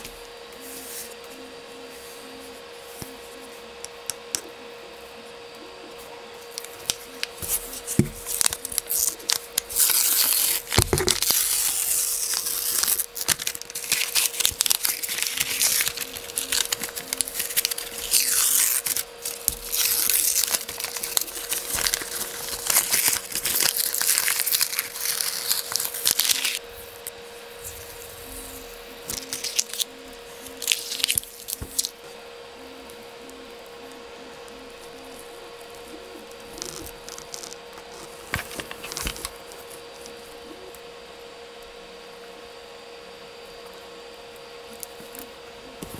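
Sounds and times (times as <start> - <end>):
paper crinkling and tearing: 6.5 - 31.9, 36.4 - 40.1.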